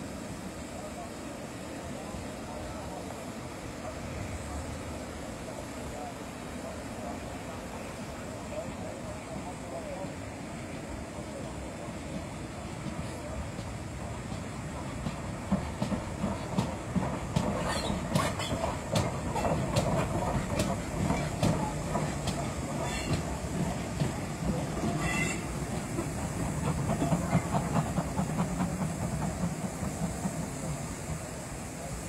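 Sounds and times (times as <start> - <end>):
train rumble: 0.0 - 32.0
train wheels clattering over rails: 7.4 - 32.0.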